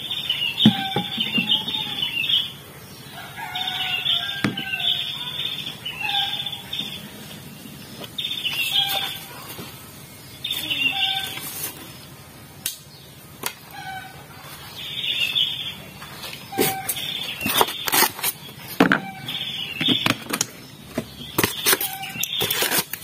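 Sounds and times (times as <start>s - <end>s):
styrofoam snapping and creaking: 21.4s - 23.0s.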